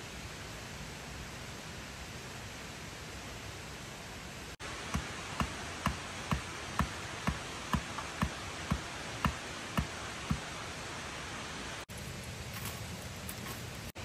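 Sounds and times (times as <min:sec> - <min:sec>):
water rushing: 0:00.0 - 0:12.4
digging tool striking earth and stone: 0:04.8 - 0:10.5.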